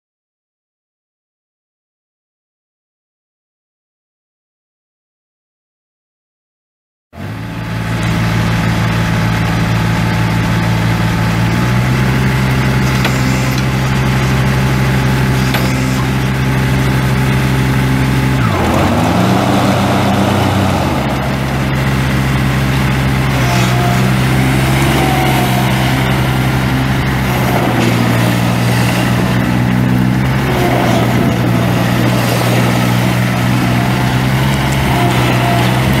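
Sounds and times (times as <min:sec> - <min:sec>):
diesel mower engine running: 0:07.2 - 0:36.0.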